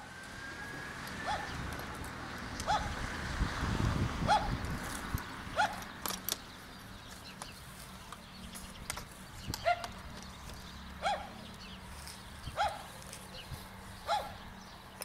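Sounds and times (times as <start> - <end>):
dog barking: 1.2 - 1.5, 2.7 - 3.0, 4.3 - 4.5, 5.6 - 5.8, 11.0 - 11.4, 12.6 - 12.9, 14.0 - 14.4.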